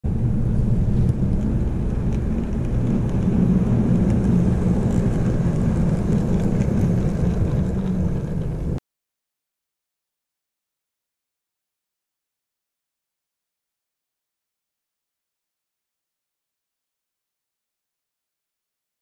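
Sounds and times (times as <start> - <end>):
model train rumbling: 0.1 - 8.8.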